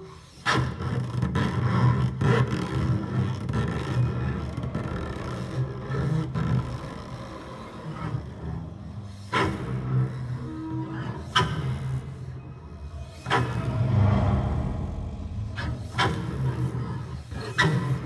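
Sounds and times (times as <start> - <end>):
double bass bowed scraping drone: 9.8 - 18.0.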